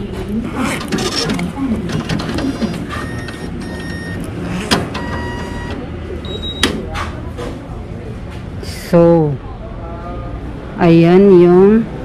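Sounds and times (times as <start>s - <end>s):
printing machine whirring: 0.5s - 6.7s.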